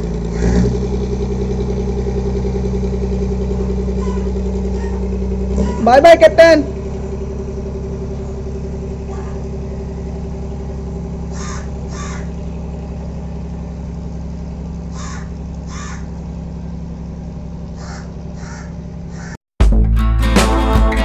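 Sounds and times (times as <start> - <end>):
boat engine humming: 0.0 - 19.4
crows cawing: 3.6 - 5.8, 11.2 - 12.5, 14.8 - 16.2, 17.7 - 19.4.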